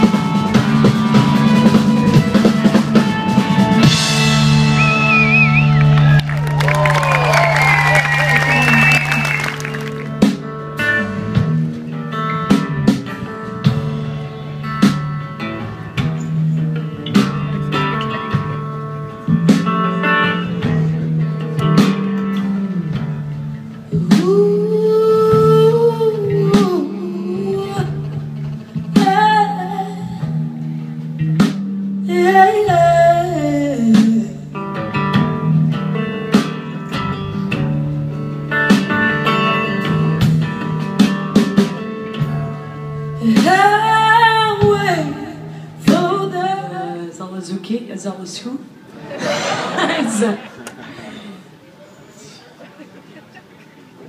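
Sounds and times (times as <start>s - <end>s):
live rock band playing: 0.0s - 47.5s
woman singing: 23.9s - 28.2s, 28.9s - 30.4s, 32.0s - 34.6s, 43.2s - 47.9s.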